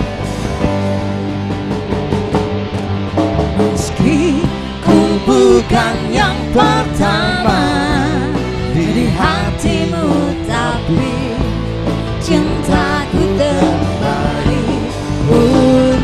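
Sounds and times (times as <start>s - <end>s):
drum kit: 0.0s - 16.0s
electric guitar: 0.0s - 16.0s
woman singing into microphone: 3.8s - 16.0s.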